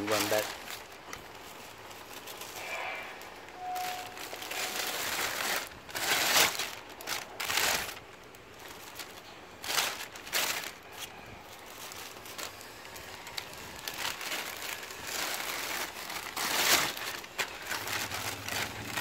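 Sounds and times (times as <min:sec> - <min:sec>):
plastic bag crinkling: 0:00.0 - 0:19.0.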